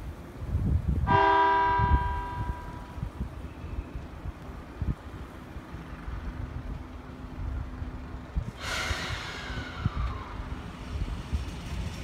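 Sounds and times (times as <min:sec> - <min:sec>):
train low hum: 0:00.0 - 0:12.0
compressed air hiss: 0:08.5 - 0:11.7.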